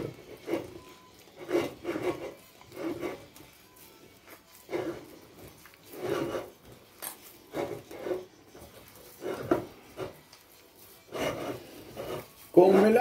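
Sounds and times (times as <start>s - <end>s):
hand kneading dough in bowl: 4.3s - 13.0s.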